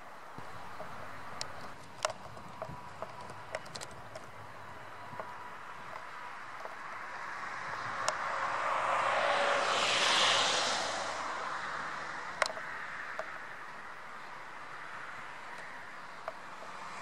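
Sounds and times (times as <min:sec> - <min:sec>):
jet engine roar: 0:04.8 - 0:13.2.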